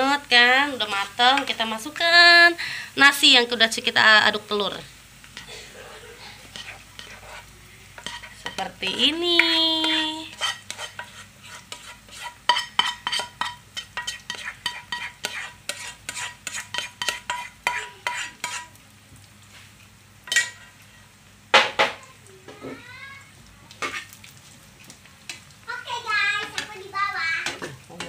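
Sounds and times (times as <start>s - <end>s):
light sizzle: 0.0s - 28.0s
spatula scraping a frying pan: 5.3s - 18.8s, 19.5s - 22.0s, 23.7s - 28.0s.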